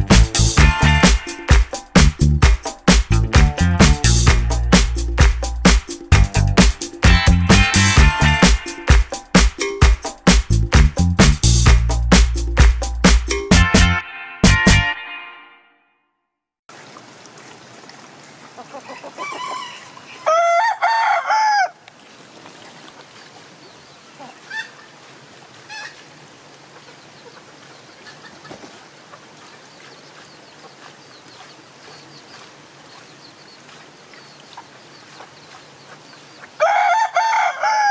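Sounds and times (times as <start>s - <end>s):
soft chicken clucks: 18.5s - 20.7s, 26.7s - 37.9s
rooster crowing: 18.8s - 21.8s, 36.6s - 37.9s.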